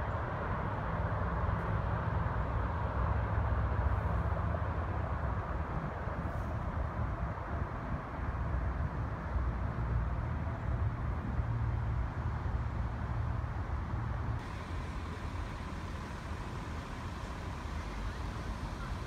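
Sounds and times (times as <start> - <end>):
low outdoor rumble: 0.0 - 19.0
hiss: 14.4 - 19.0.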